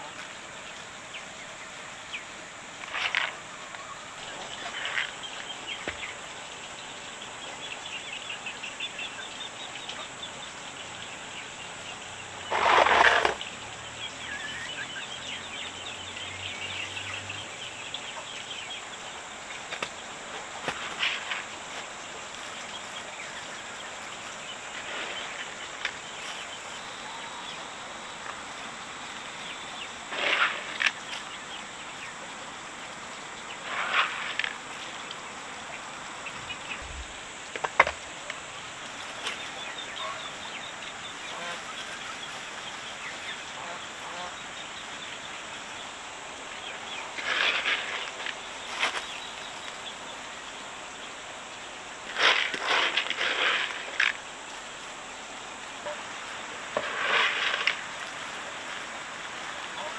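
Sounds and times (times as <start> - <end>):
chickens clucking: 16.6 - 45.2.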